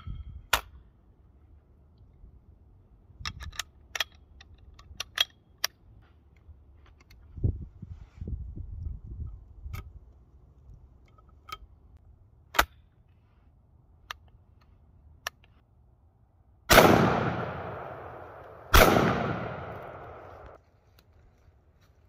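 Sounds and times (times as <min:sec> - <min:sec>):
metallic gun clicks: 0:03.2 - 0:05.8
shotgun shots echoing: 0:16.7 - 0:20.6.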